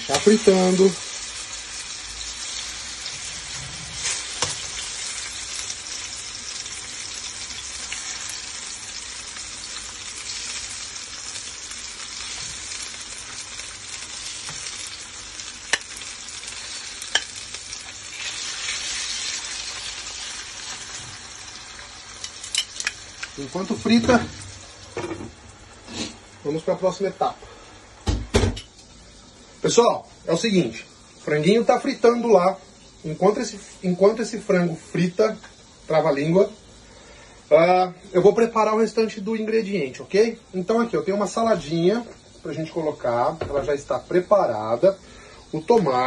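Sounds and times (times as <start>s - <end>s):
chicken frying in oil sizzling: 0.0s - 46.0s.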